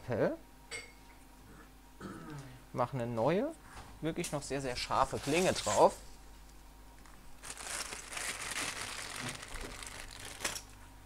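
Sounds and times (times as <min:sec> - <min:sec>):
wrapper crinkling: 0:07.0 - 0:10.8.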